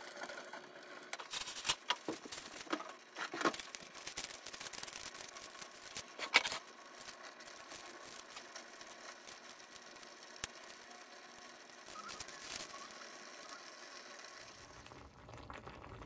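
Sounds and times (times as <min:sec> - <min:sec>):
paper rustling and crinkling: 0:01.2 - 0:07.2.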